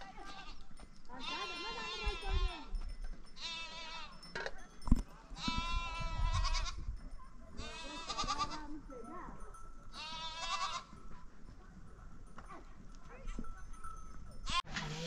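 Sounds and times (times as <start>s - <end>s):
sheep bleating: 0.1s - 2.7s, 3.4s - 4.1s, 7.6s - 8.7s, 9.9s - 10.9s.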